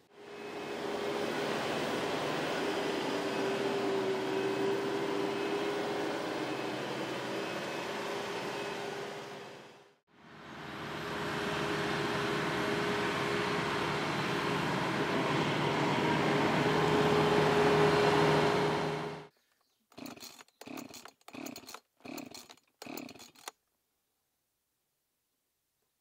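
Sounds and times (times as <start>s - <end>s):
tractor diesel engine running: 0.1s - 19.3s.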